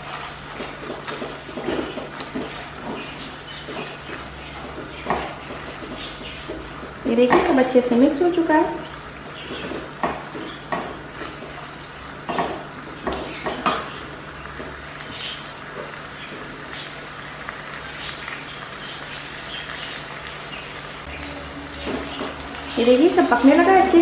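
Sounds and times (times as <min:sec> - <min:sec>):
spatula scraping a pan: 0:00.0 - 0:06.7
sauce sizzling in a pan: 0:00.0 - 0:24.0.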